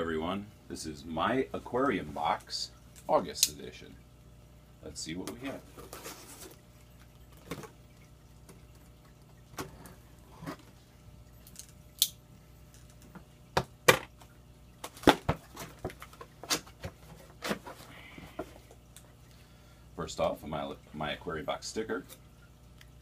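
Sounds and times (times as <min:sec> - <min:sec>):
cardboard rustles and scrapes: 0:05.6 - 0:06.6.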